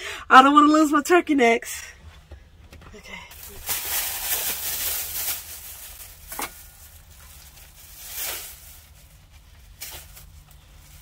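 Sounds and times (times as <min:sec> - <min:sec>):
plastic bag rustling: 0:03.3 - 0:11.0.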